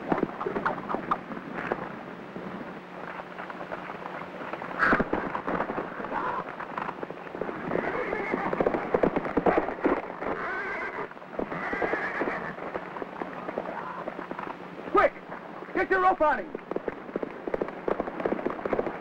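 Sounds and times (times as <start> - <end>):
hooves thudding: 0.0 - 19.0
steady low hum: 0.0 - 19.0
horse neighing: 7.6 - 8.6, 9.6 - 12.6.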